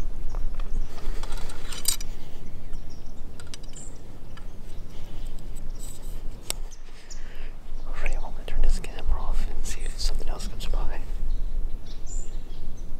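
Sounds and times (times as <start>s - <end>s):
clothing rubbing on microphone: 4.9s - 7.0s.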